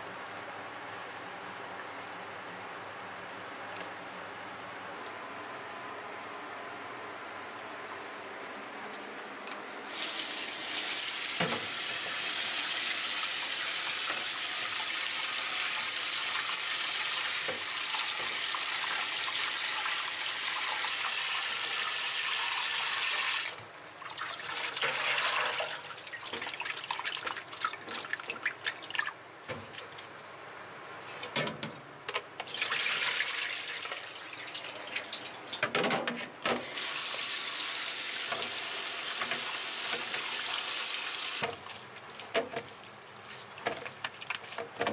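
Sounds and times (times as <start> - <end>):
tap running into metal sink: 11.4 - 11.8
water splashing and sloshing: 23.5 - 30.2, 32.4 - 36.8, 41.4 - 44.9.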